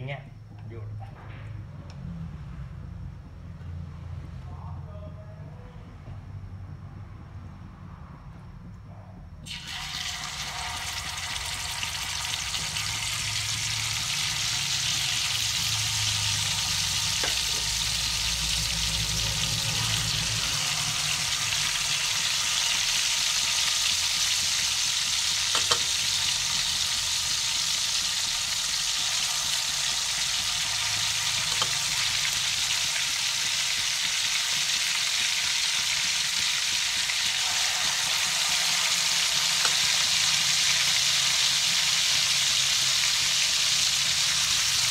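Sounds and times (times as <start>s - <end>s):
fish frying in hot oil: 9.4s - 44.9s.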